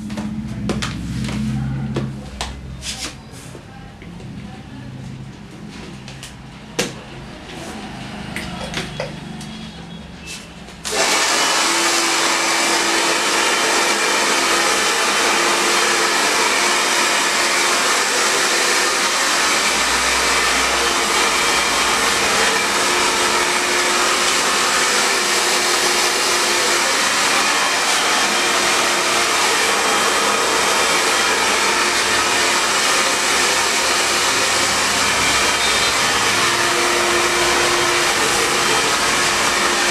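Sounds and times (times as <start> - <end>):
hair dryer blowing: 10.8 - 39.9.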